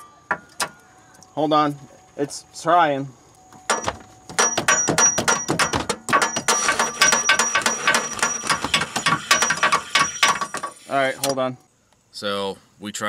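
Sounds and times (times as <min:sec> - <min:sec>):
hammer tapping on metal: 0:03.7 - 0:10.6.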